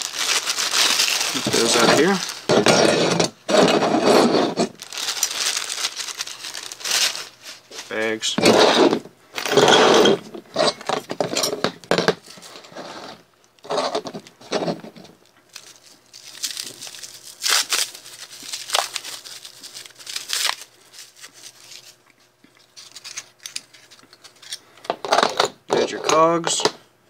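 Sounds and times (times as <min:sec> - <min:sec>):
plastic bags crinkling: 0:00.0 - 0:03.0, 0:04.6 - 0:08.4, 0:15.5 - 0:24.4.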